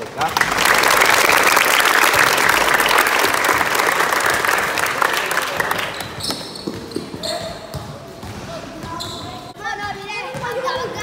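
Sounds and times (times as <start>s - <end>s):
crowd applause: 0.0s - 6.2s.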